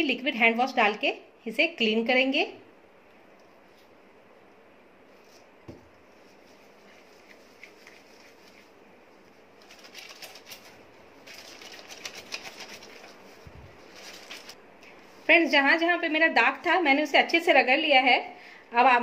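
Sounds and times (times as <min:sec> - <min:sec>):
wet cloth rubbing between hands: 0:05.1 - 0:14.6.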